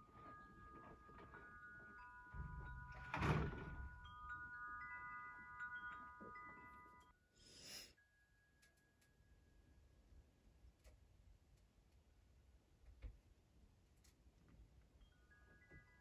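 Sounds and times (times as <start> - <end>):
wind chime ringing: 0.0 - 9.6.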